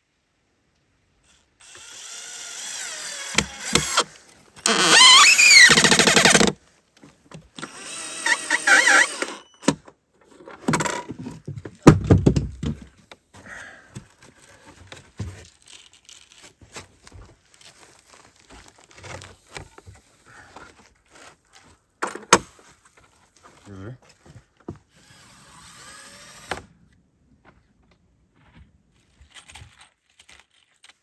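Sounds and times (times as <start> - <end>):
cordless drill whirring: 1.3 - 6.5, 7.6 - 9.8, 24.9 - 26.7
heavy wooden thump: 11.5 - 12.9
faint clicks and scrapes: 14.0 - 24.7, 27.7 - 31.0.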